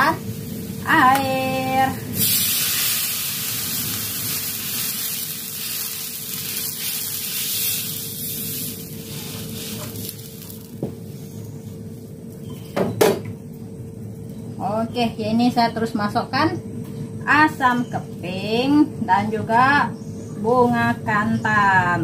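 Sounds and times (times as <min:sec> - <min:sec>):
water sizzling in hot oil: 0:02.1 - 0:11.2.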